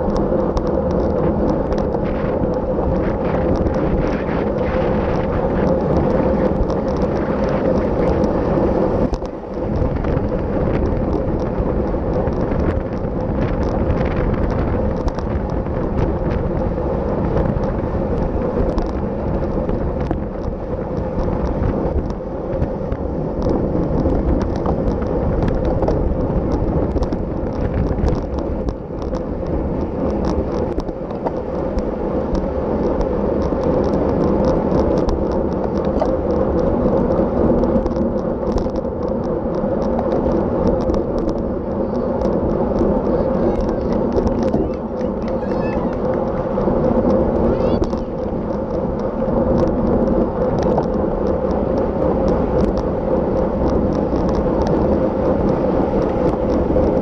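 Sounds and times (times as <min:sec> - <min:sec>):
tyre and road rumble: 0:00.0 - 0:57.0
wind buffeting microphone: 0:00.0 - 0:57.0.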